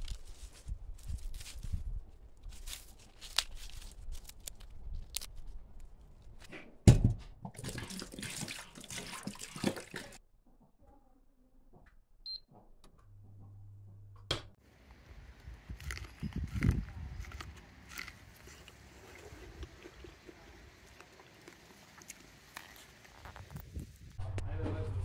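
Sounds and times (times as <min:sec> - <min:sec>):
tap water running into a pot: 0:07.6 - 0:10.2
low hum: 0:24.1 - 0:25.0.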